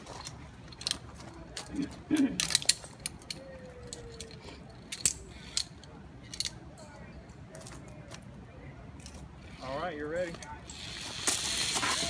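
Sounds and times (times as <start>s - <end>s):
metal carabiners clicking: 0.1s - 7.0s.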